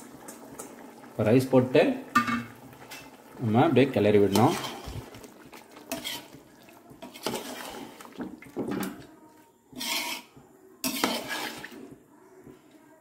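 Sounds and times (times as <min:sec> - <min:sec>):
metal ladle scraping a metal pot: 0:04.3 - 0:09.0, 0:09.7 - 0:11.9.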